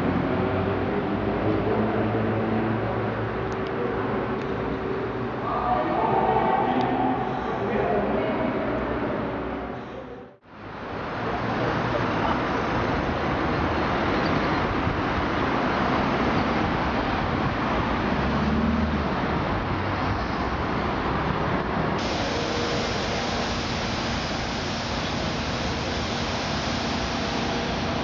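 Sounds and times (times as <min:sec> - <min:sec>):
road traffic hiss: 0:09.8 - 0:28.0.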